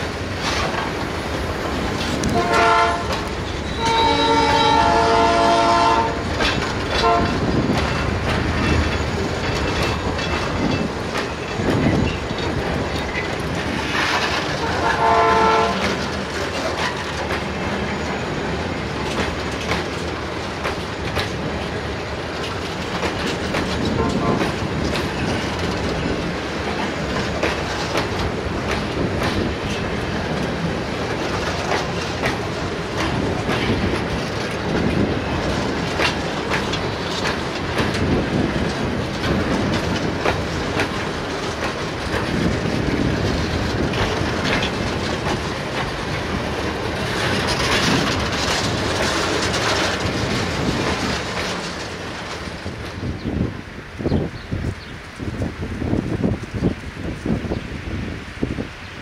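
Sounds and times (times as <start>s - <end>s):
train wheel clatter: 0.0s - 59.0s
train air horn blast: 2.2s - 6.3s, 7.0s - 7.4s, 14.6s - 16.0s, 24.0s - 24.5s
clicks over rail joints: 19.0s - 53.0s.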